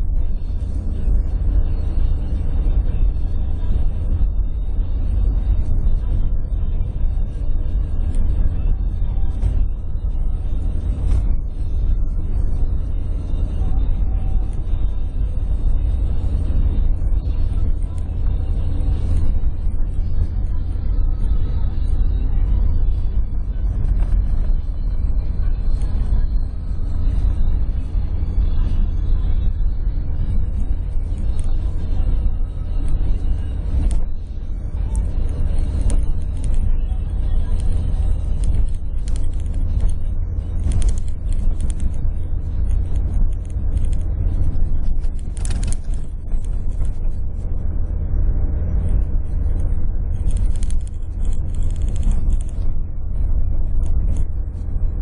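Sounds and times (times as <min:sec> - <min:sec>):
vehicle low rumble: 0:00.0 - 0:55.0.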